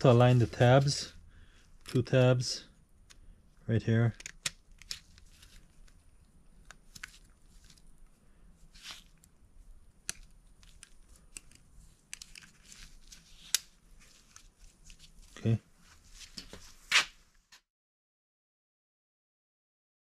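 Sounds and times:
rustling of gloves: 0.0s - 17.6s
small metal clicks: 10.0s - 12.7s.

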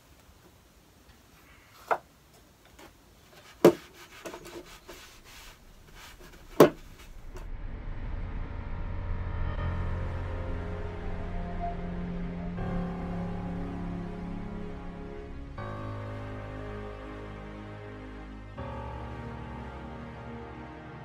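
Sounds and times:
rag rubbing on wood: 3.3s - 7.2s
background music: 5.4s - 21.0s.

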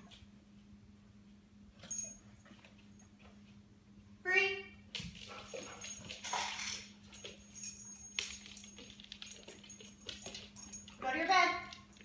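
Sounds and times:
dog collar tags jingling: 1.8s - 3.1s, 5.3s - 12.0s
dog nails clicking on hard floor: 4.9s - 12.0s.

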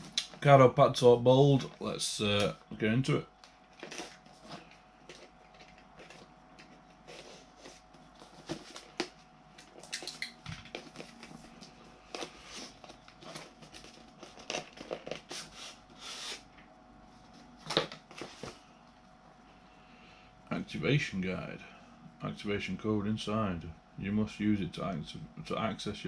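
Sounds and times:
cardboard box rustling and scraping: 3.8s - 9.1s.

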